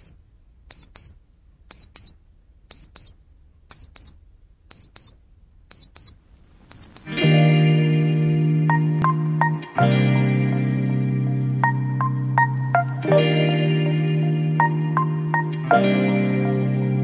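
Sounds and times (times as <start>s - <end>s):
alarm clock double beeps: 0.7s - 1.1s, 1.7s - 2.1s, 2.7s - 3.1s, 3.7s - 4.1s, 4.7s - 5.1s, 5.7s - 6.1s, 6.7s - 7.1s.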